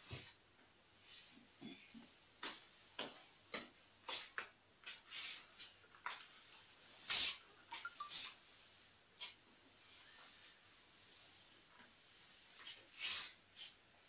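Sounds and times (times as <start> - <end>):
squeegee swishing on wet floor: 4.0 - 13.9.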